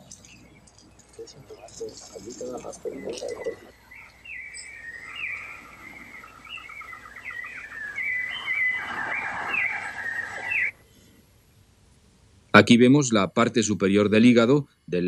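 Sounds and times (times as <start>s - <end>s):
small birds chirping: 0.0s - 11.2s.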